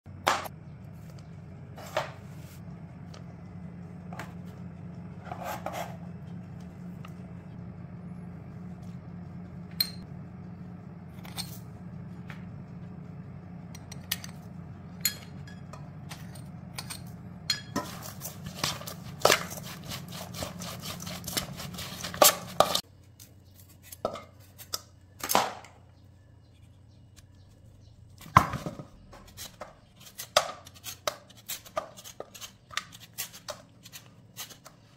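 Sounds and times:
low hum: 0.1 - 30.0
utensils clinking against bowl: 15.0 - 22.8.

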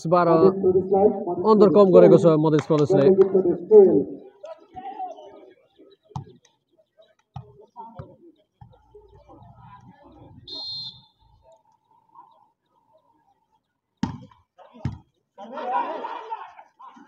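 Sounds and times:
faint crowd voices: 0.0 - 17.0
referee's whistle trill: 10.4 - 11.2.

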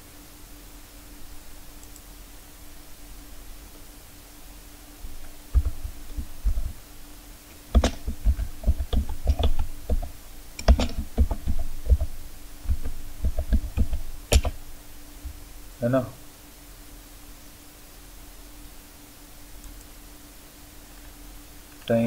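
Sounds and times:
faint steady hum: 0.0 - 22.0
computer keyboard typing: 5.2 - 6.8, 7.7 - 14.6.

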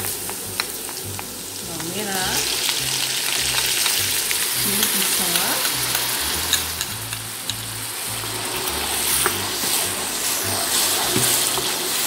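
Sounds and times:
background music with bass line: 0.0 - 12.0
chili paste sizzling in oil: 0.0 - 12.0.

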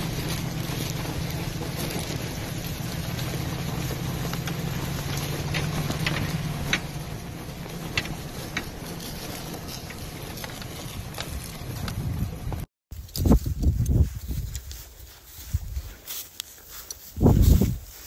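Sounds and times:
wind on microphone: 11.4 - 16.0, 17.1 - 18.0.

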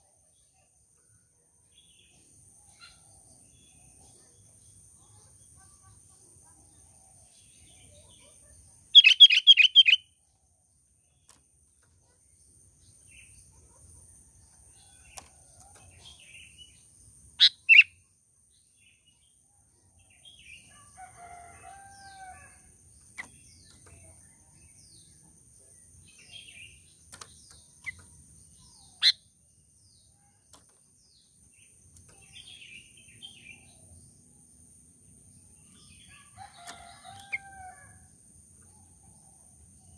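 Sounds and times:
faint bird chirps: 0.0 - 34.6
bulbul calling: 8.9 - 10.1, 17.4 - 18.0, 28.8 - 29.2.

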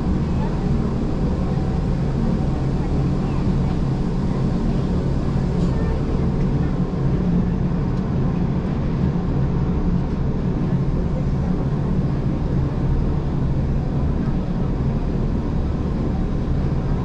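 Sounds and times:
train low rumble: 0.0 - 17.0.

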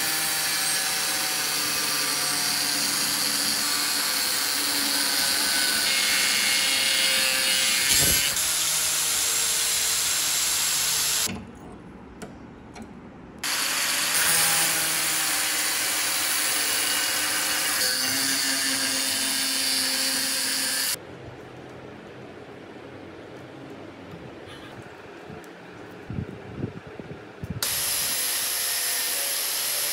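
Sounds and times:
angle grinder cutting steel: 0.0 - 11.3, 13.4 - 21.0, 27.6 - 29.9.

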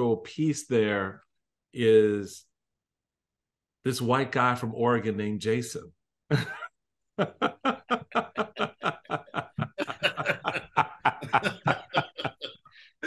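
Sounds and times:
man laughing hard: 6.3 - 12.6.

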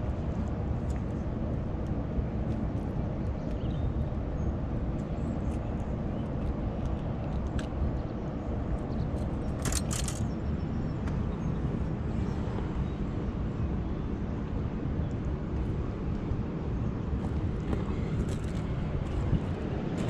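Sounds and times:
low outdoor rumble: 0.0 - 20.0
sharp handling noise: 9.6 - 10.3
small clicks: 9.6 - 10.4.

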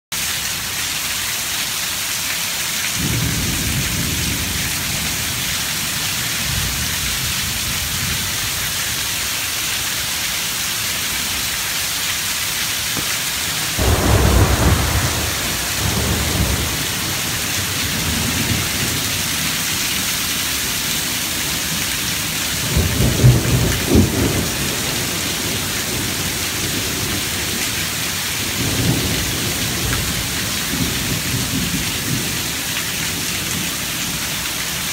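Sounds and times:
rain falling: 0.1 - 34.9
thunder rumbling: 13.0 - 33.3.

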